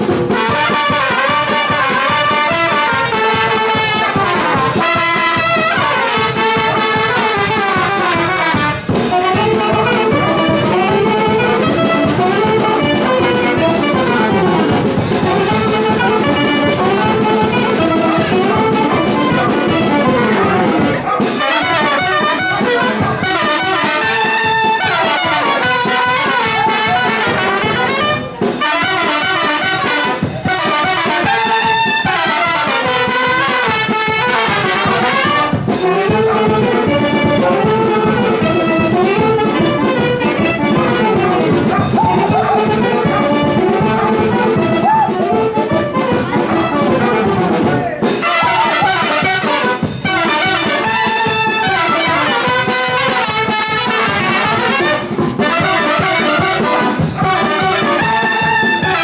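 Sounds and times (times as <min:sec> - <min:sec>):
brass band playing dance tune: 0:00.0 - 0:59.0.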